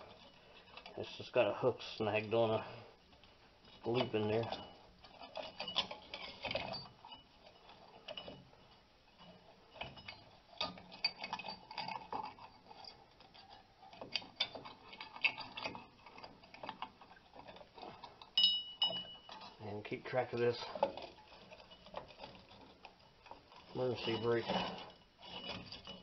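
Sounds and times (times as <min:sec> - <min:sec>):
metal parts clinking and rattling: 0:02.2 - 0:26.0
short metallic ring: 0:18.4 - 0:19.5.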